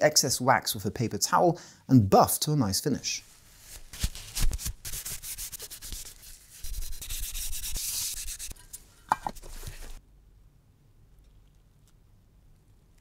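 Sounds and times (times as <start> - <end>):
paper towel rubbing on wood: 3.6 - 8.6.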